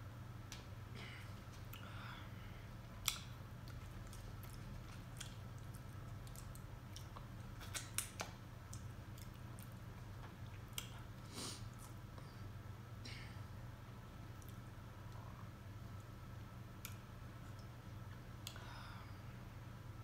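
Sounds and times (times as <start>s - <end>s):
low steady hum: 0.0s - 20.0s
eating clicks and cracks: 2.9s - 11.0s, 14.4s - 15.2s.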